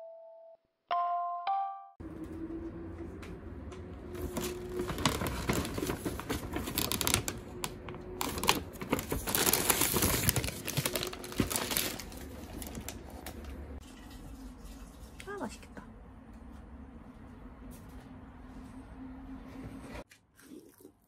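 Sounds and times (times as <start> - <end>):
paper bags rustling and crinkling: 4.1 - 13.8.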